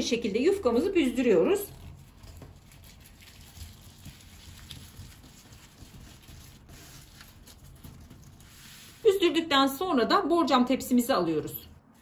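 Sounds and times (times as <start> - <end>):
soft pastry sheet rustling: 0.6 - 10.1.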